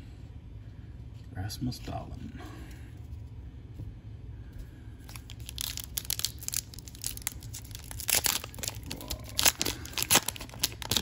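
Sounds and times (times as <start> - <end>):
foil wrapper crinkling and tearing: 5.0 - 11.0.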